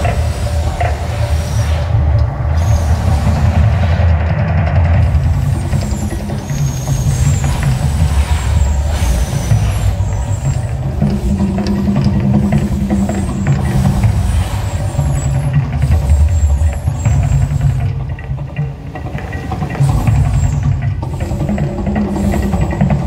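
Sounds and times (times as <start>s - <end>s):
deep rumble from sound system: 0.0s - 18.0s
gas flame jets hissing: 0.0s - 23.0s.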